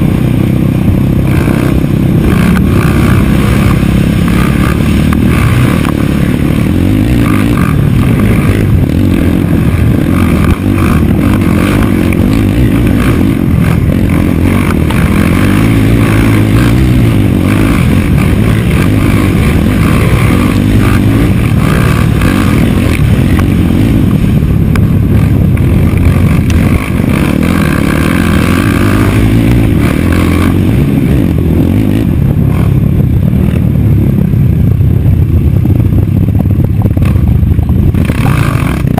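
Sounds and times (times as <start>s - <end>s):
racing engine revving: 0.0s - 33.6s, 37.9s - 38.9s.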